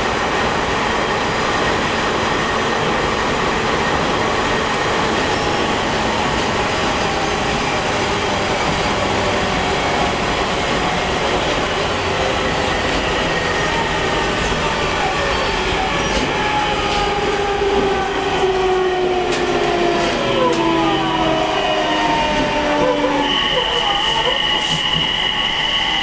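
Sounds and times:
train rail and motor noise: 0.0 - 26.0
sharp clicks from rails: 19.2 - 20.8.

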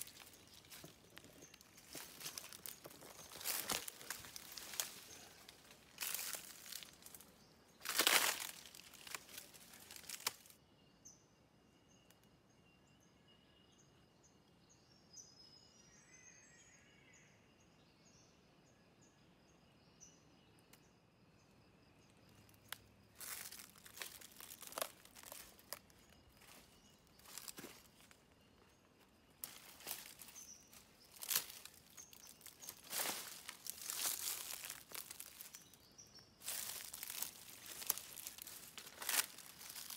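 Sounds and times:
footsteps in dry leaves: 0.0 - 10.5, 23.1 - 28.2, 29.4 - 39.9.

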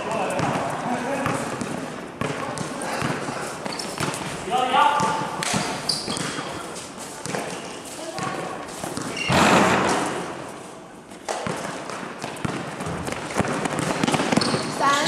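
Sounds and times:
players' voices: 0.0 - 11.1
loud crash: 9.3 - 10.2.

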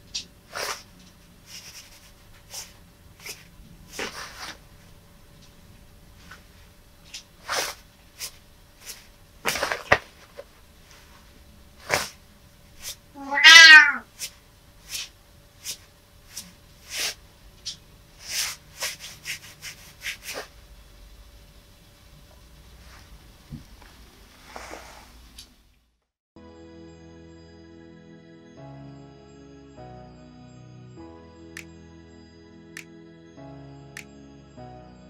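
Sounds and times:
cat meowing: 13.2 - 14.1.

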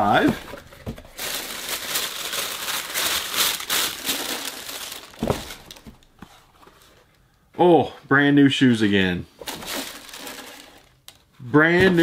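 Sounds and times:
packing material crinkling: 0.0 - 6.8, 9.5 - 11.0.

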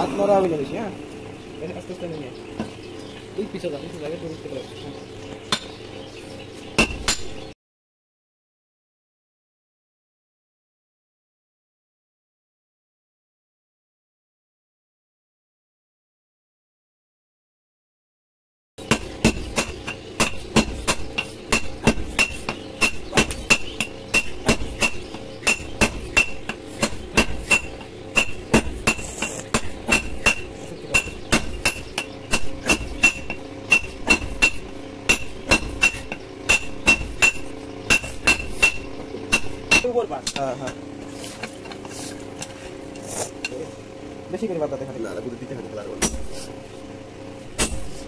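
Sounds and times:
hammer blows on metal anvil: 18.8 - 40.8.

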